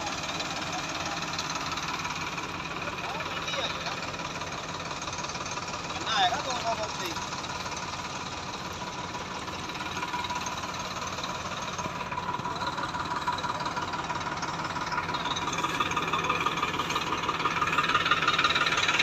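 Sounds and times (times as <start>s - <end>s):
tractor diesel engine knocking: 0.0s - 19.0s.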